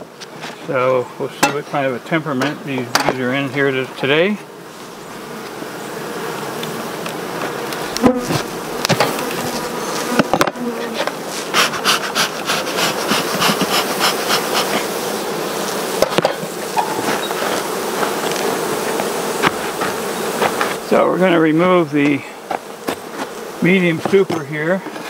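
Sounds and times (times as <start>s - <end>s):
bees buzzing loudly: 0.0s - 25.0s
hive tool knocking wood: 2.4s - 3.2s, 6.6s - 14.9s, 16.0s - 20.8s, 22.0s - 25.0s.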